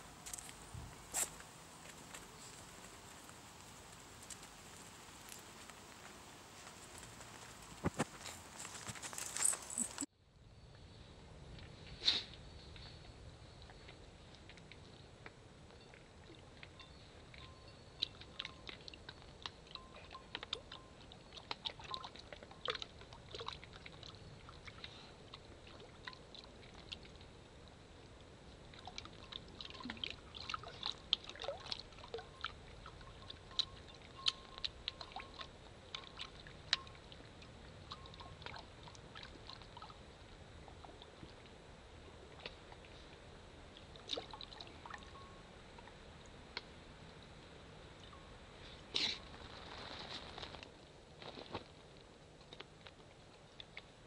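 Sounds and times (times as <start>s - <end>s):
puppies lapping and splashing water: 0.0s - 10.1s, 18.0s - 27.4s, 28.6s - 45.2s.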